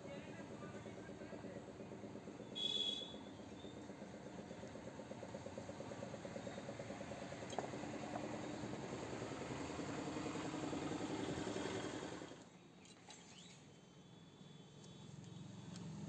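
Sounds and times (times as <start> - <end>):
engine running with fast pulse: 0.0 - 12.4.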